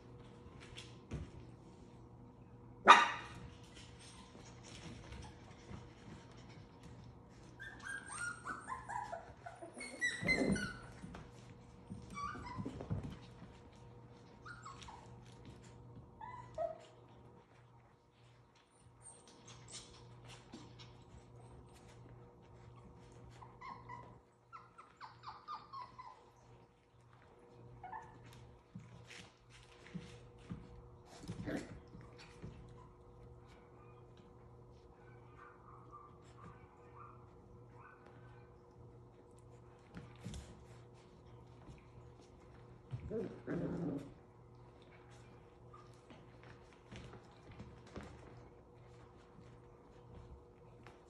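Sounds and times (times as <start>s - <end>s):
puppies yipping and whining: 3.7s - 17.2s, 18.8s - 30.2s
puppy yelp: 7.6s - 11.2s, 12.0s - 13.0s, 14.4s - 15.2s, 23.0s - 26.4s, 27.8s - 28.3s.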